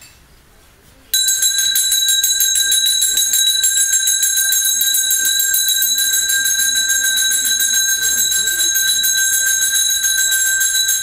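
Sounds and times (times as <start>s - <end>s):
metal bell rung rapidly: 1.2s - 11.0s
faint voices murmuring: 6.7s - 10.9s.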